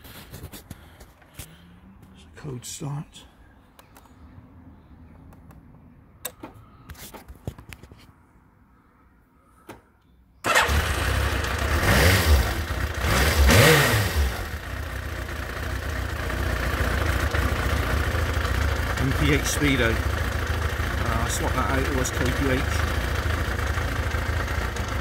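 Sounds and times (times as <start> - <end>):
motorcycle engine starting and revving: 10.4 - 25.0.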